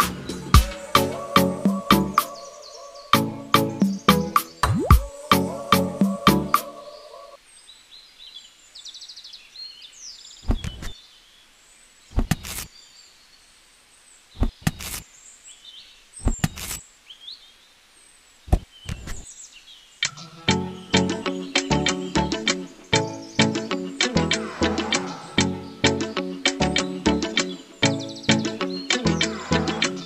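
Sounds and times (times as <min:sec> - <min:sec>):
music: 0:00.0 - 0:02.4, 0:03.1 - 0:06.8, 0:20.4 - 0:30.0
faint birds chirping: 0:00.0 - 0:30.0
knocks and thunks on sand: 0:10.4 - 0:11.0, 0:12.1 - 0:12.7, 0:14.4 - 0:15.0, 0:16.2 - 0:16.8, 0:18.5 - 0:19.2.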